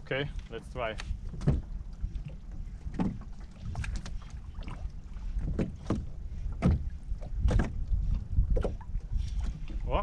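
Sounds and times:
waves slapping boat hull: 0.0 - 10.0
wind rumble on microphone: 0.0 - 10.0.

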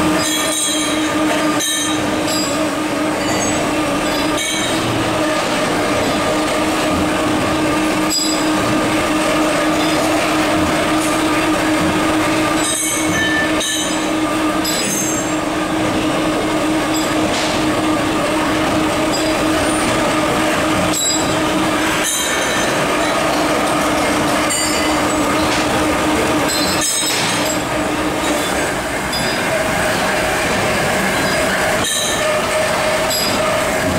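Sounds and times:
workshop machinery droning: 0.0 - 33.9
metallic clanks of steel parts: 26.5 - 28.6.

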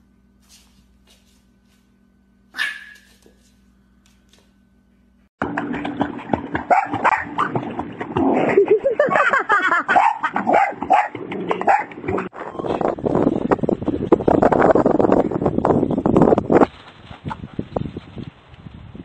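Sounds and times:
dogs barking and yelping: 2.6 - 3.3, 6.6 - 7.6, 9.0 - 12.3
water splashing: 5.4 - 9.3.

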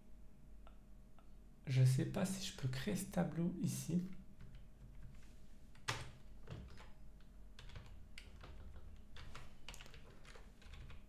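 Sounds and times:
keyboard keystrokes: 7.6 - 11.0.

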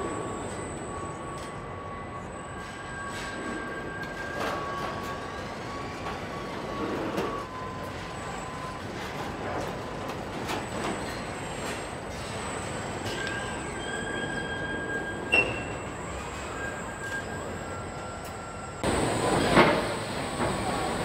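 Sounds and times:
steady whining tones: 14.8 - 21.0
machine hum: 18.8 - 21.0.

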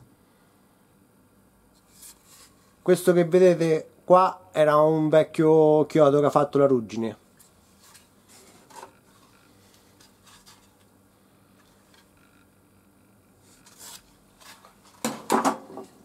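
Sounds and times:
wood rustling and rubbing: 7.7 - 10.9.

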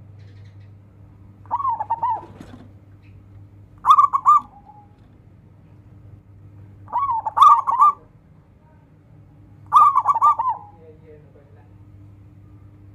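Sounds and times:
faint low hum: 0.0 - 12.9
dove cooing: 1.4 - 3.2, 3.8 - 5.2, 6.9 - 8.1, 9.7 - 10.8.

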